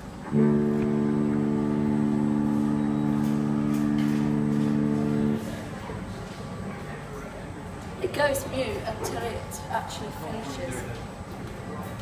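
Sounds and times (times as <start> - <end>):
long electronic note from speaker: 0.3 - 5.9.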